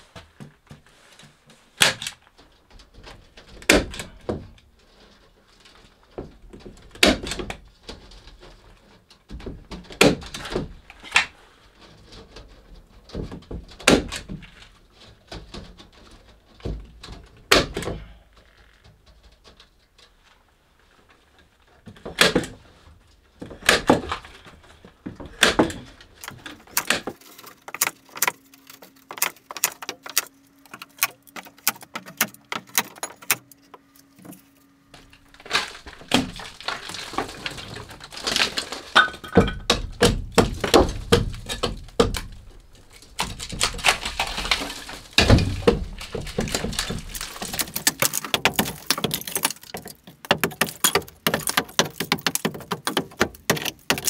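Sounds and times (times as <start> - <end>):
knocks on wood boards: 39.0 - 42.5, 43.2 - 54.0.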